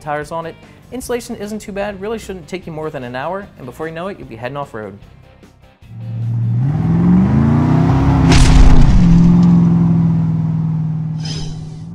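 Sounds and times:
car engine revving: 5.9s - 11.2s
loud crash: 8.1s - 9.7s.

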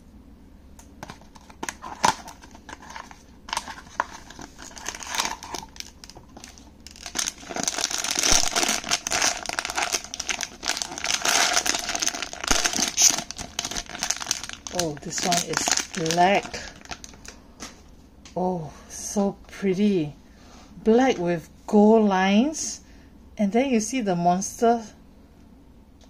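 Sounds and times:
foil bag crinkling and tearing: 1.0s - 17.4s.

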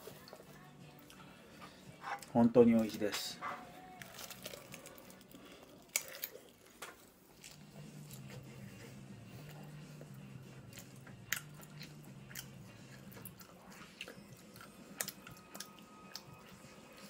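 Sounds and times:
person chewing food: 3.4s - 17.0s.

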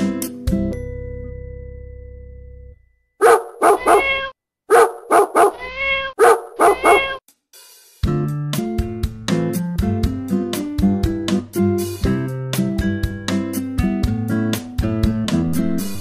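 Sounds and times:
small dog yapping: 3.2s - 7.2s.

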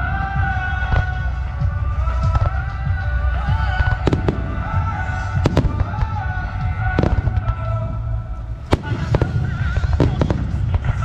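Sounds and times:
constant low rumble: 0.0s - 11.0s.

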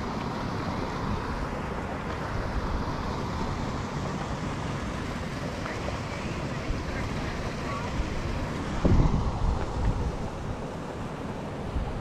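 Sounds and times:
wind rumble on microphone: 5.0s - 12.0s.

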